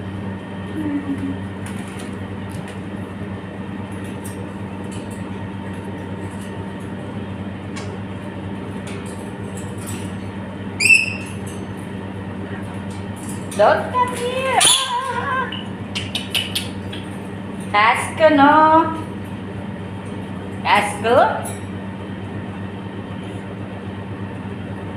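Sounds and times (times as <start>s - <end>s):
low electrical hum: 0.0s - 24.9s
parrot squawk: 10.8s - 11.4s, 14.5s - 16.8s.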